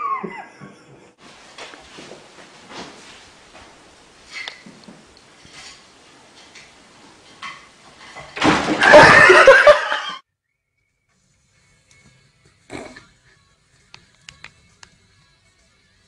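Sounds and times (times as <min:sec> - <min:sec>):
cat falling to floor: 0:08.2 - 0:09.4
people laughing: 0:08.8 - 0:10.2.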